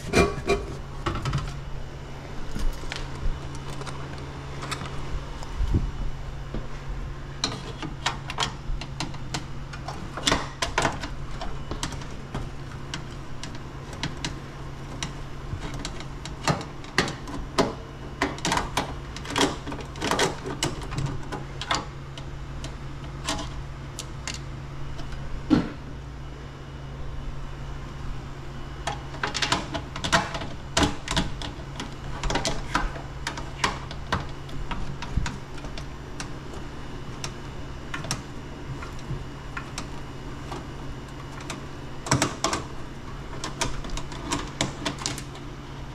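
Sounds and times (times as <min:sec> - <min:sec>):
steady low hum: 0:00.0 - 0:45.9.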